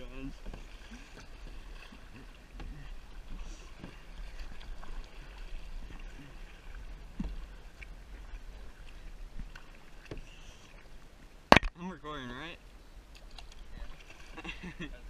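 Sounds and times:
paddle strokes in water: 0:00.0 - 0:11.5, 0:13.1 - 0:15.0
water splashing against kayak: 0:00.0 - 0:15.0
knocks on kayak: 0:11.5 - 0:11.8.

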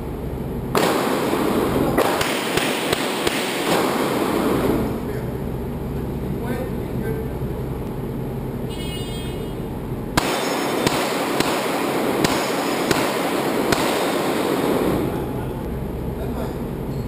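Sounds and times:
handgun shots: 0:02.0 - 0:04.4, 0:10.2 - 0:15.1.

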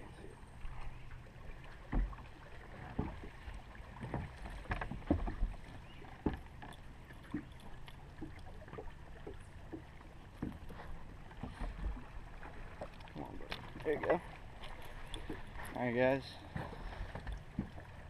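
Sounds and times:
knocks and taps on boat deck: 0:01.8 - 0:02.2, 0:02.8 - 0:03.3, 0:04.0 - 0:05.6, 0:10.3 - 0:10.7, 0:16.5 - 0:17.8.

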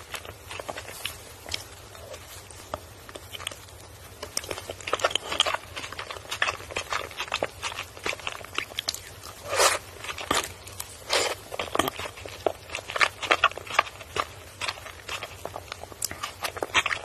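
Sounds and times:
mouth eating sounds: 0:04.3 - 0:17.0.

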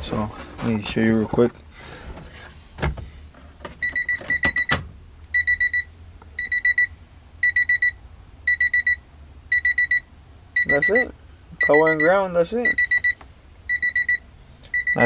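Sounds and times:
electronic beeper in bursts: 0:05.4 - 0:15.0.

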